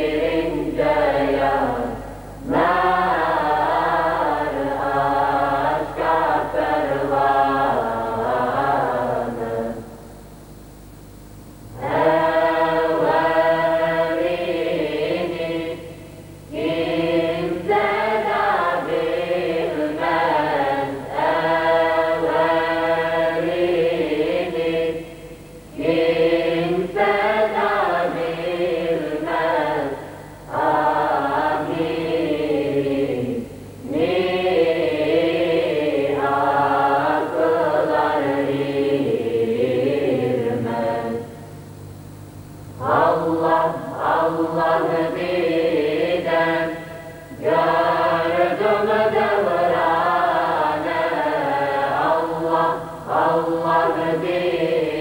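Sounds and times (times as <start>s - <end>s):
choir singing unaccompanied: 0.0s - 10.0s, 11.7s - 41.4s, 42.8s - 55.0s.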